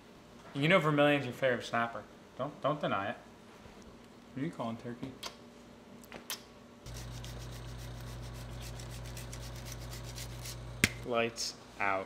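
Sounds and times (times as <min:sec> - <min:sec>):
steady low hum: 0:05.5 - 0:12.0
cheese grating on a grater: 0:06.9 - 0:10.8.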